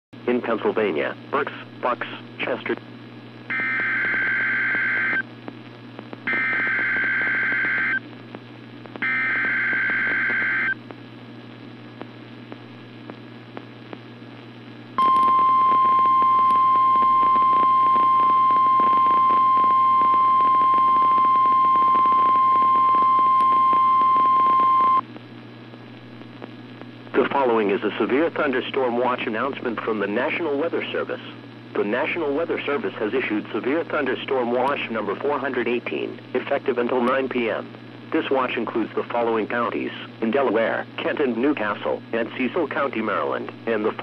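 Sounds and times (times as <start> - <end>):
radio hiss and hum: 0.2 - 44.0
steady warning alarm tone: 3.5 - 5.2, 6.3 - 8.0, 9.0 - 10.8.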